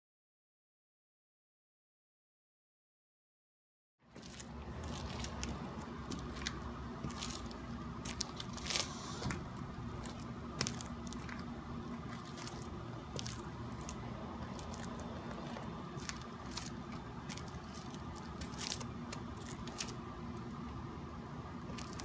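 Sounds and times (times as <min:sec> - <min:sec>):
low outdoor hum: 0:04.0 - 0:22.0.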